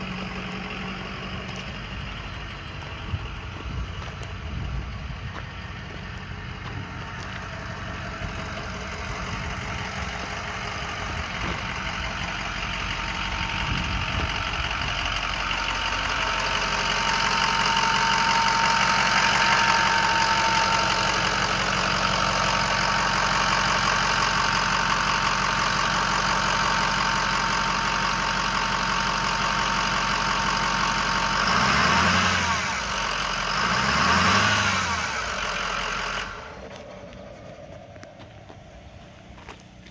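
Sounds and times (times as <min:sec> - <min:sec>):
steady whine: 0:00.0 - 0:28.9, 0:35.2 - 0:39.9
diesel engine idling: 0:00.0 - 0:39.9.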